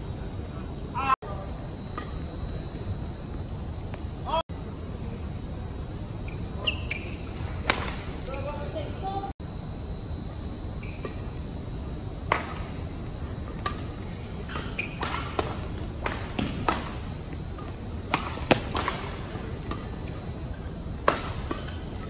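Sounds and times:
steady hall hum: 0.0s - 22.0s
rackets striking shuttlecock: 7.6s - 8.2s, 12.3s - 12.8s, 13.4s - 20.0s, 21.0s - 22.0s.

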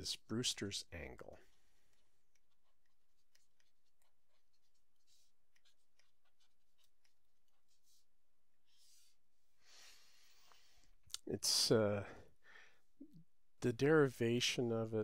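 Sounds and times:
stylus tapping and scratching tablet: 1.4s - 9.2s.

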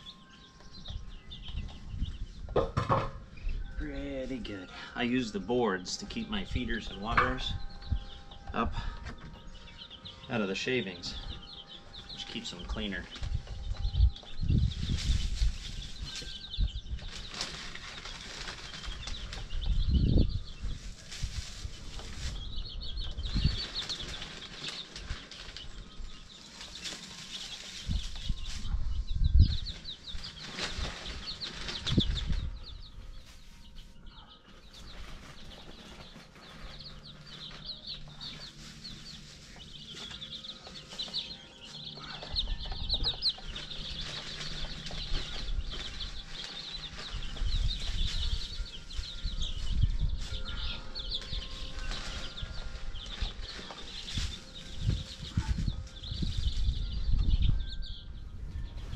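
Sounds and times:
baby chicks peeping: 0.0s - 58.9s
thumps and rustling in wood shavings: 34.5s - 56.6s.

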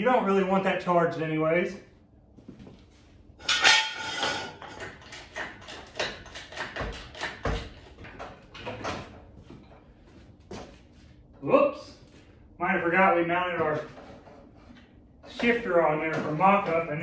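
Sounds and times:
loud rattling scrape: 3.4s - 6.8s
tools and metal parts clattering: 3.4s - 10.0s.

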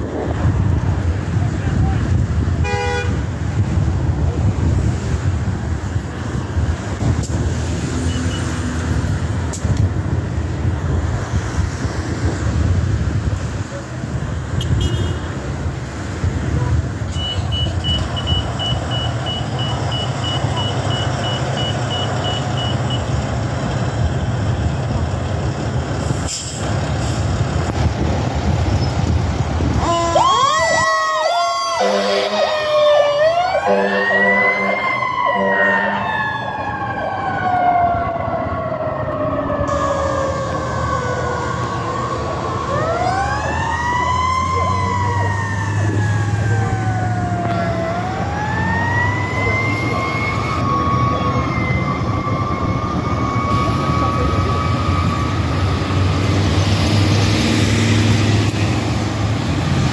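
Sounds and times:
air horn blasts: 2.6s - 3.2s, 31.8s - 32.5s, 33.7s - 34.8s
siren wailing and yelping: 29.8s - 55.6s.

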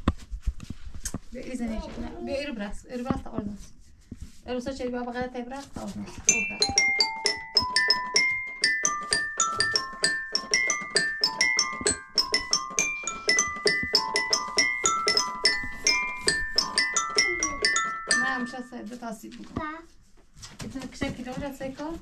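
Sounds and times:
toy keyboard plinking tune: 6.3s - 18.8s.

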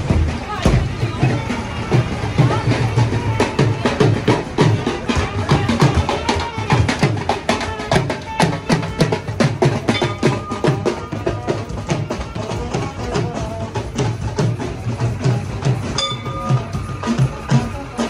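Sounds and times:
drums beating quick rhythm: 0.0s - 18.0s
brass band playing: 4.7s - 14.0s, 14.8s - 18.0s
trumpet melody: 4.8s - 14.0s.

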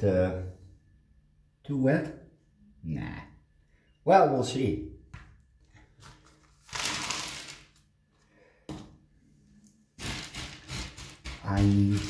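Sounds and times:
bark chips and pebbles rattling: 6.6s - 7.7s.

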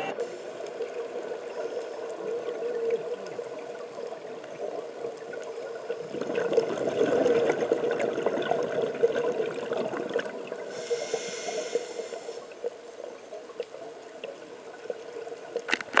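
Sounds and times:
exhaled bubbles crackling underwater: 0.0s - 16.0s
regulator inhalation hiss: 10.7s - 12.6s.

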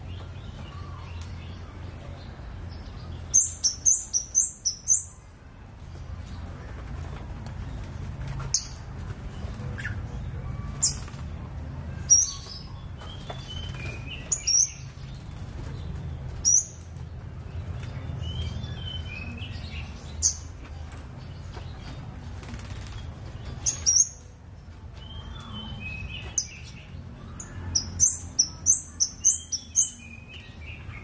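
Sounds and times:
bird chirping: 0.0s - 5.3s, 11.9s - 22.1s, 25.0s - 31.0s.

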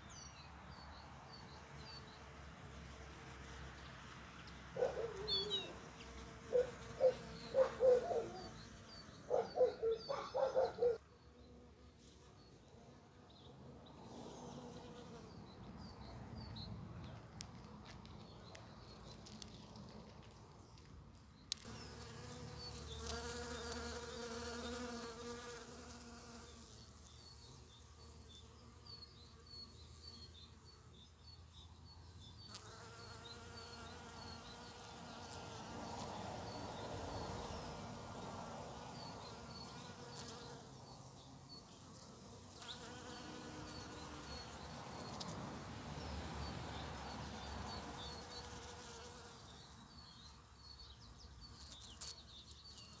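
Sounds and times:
faint high chirps: 4.8s - 5.8s
bees buzzing: 21.5s - 27.4s, 32.5s - 49.6s.

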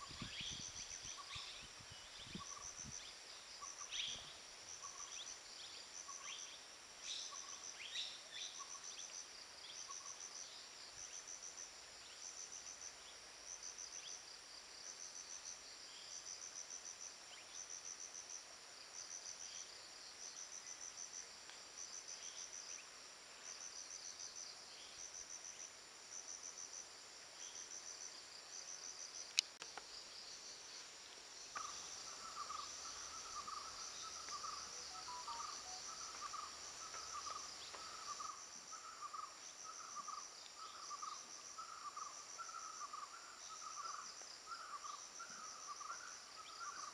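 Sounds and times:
insects chirping in bursts: 0.0s - 46.9s
low pulsing chirp: 31.6s - 38.3s.

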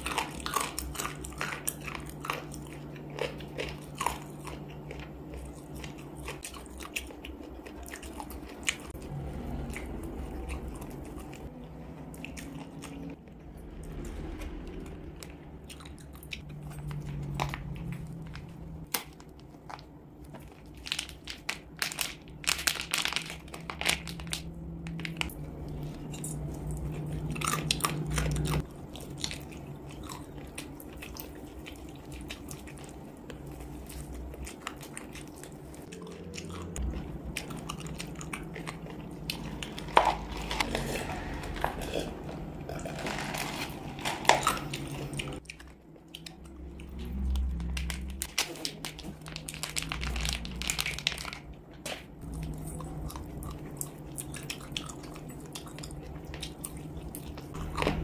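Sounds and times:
chewing and crunching: 0.0s - 58.0s
steady low hum: 0.0s - 58.0s
plastic packet crinkling: 18.3s - 25.4s, 42.8s - 45.0s, 47.6s - 51.6s.

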